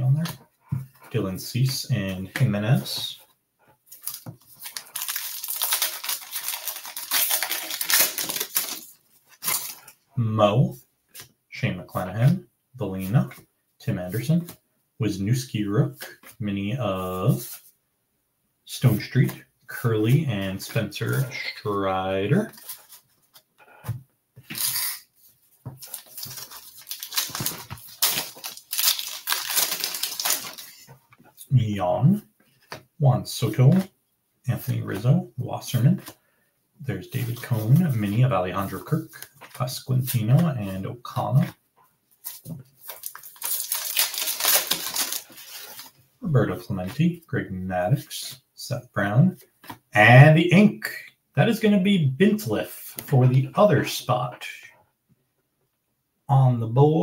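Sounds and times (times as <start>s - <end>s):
shiny wrapper crinkling: 4.0s - 10.0s, 25.7s - 30.9s, 42.3s - 46.0s.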